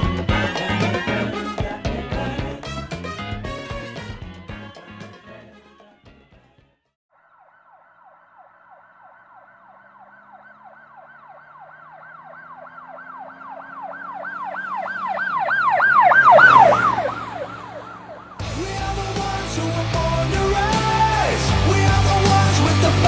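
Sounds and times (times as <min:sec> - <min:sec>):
siren yelping: 0:07.1 - 0:18.4.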